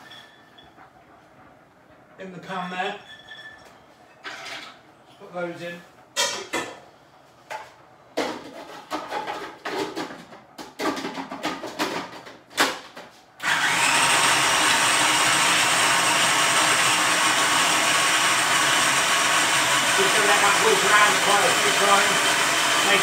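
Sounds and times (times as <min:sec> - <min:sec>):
food processor running: 0:13.4 - 0:23.0.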